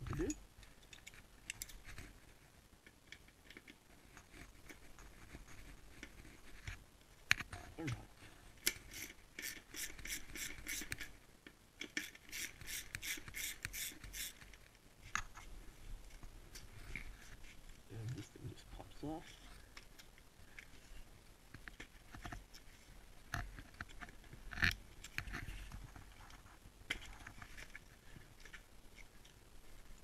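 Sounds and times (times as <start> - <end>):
ratchet wrench clicking: 12.0 - 14.4.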